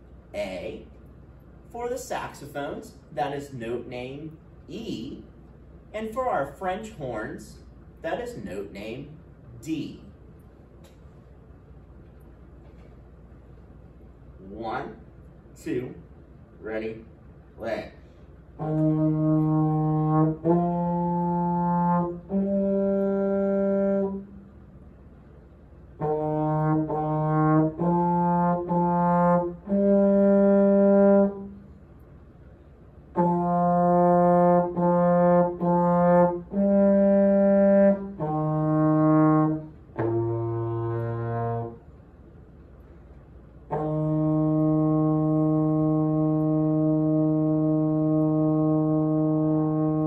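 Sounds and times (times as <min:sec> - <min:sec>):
trombone playing held notes: 0:18.6 - 0:24.6, 0:25.9 - 0:31.7, 0:33.1 - 0:41.9, 0:43.7 - 0:50.0.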